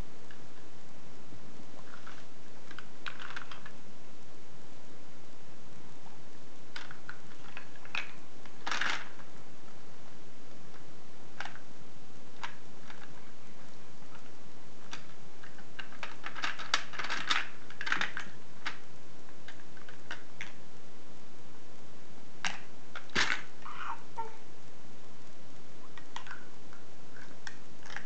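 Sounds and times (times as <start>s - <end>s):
plastic pieces clattering: 14.9s - 18.8s, 22.4s - 23.5s.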